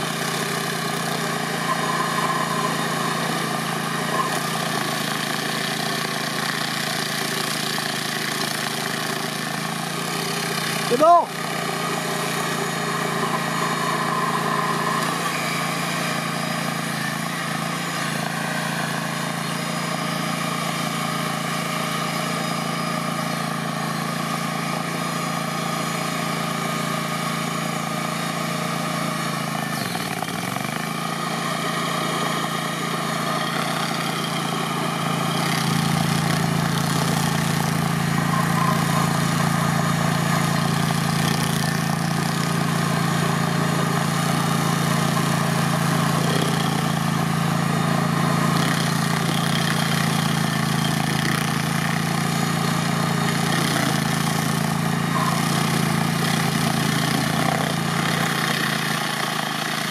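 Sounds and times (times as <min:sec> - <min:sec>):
cutter wheel grinding stump: 0:00.0 - 0:59.9
stump grinder running: 0:00.0 - 0:59.9.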